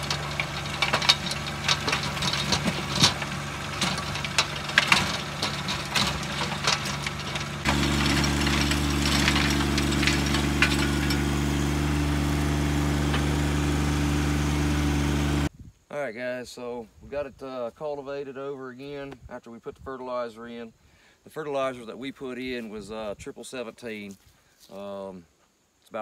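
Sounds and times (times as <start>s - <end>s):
sharp clicks and knocks: 0.0s - 13.8s
rotary tiller in soil: 0.0s - 15.5s
tractor diesel engine under load: 0.0s - 15.5s.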